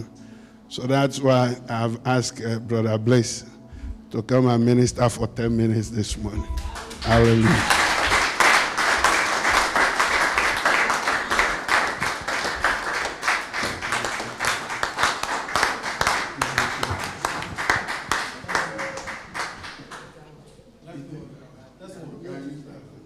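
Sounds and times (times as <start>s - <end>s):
crowd applauding: 6.5s - 20.3s.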